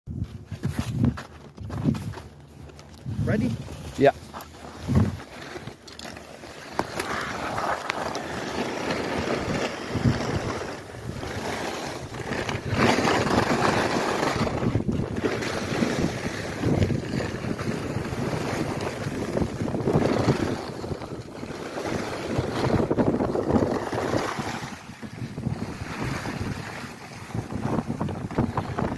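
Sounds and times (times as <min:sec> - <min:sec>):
skis scraping over snow: 0:00.1 - 0:28.9
wind on microphone: 0:04.8 - 0:05.3, 0:07.1 - 0:28.9.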